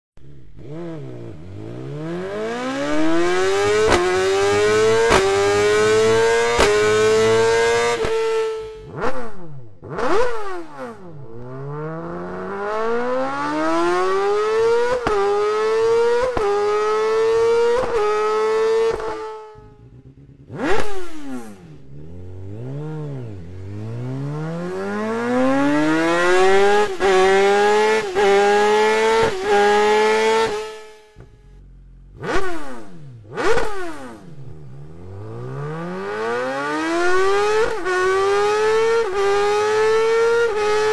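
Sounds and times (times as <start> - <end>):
motorcycle exhaust accelerating: 0.2 - 40.9
motorcycle throttle blips: 2.9 - 11.7, 17.6 - 24.9.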